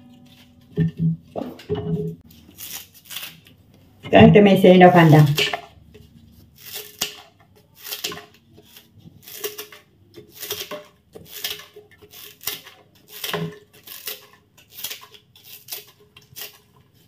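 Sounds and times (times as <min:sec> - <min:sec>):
scissors snipping leaves: 0:02.6 - 0:03.5.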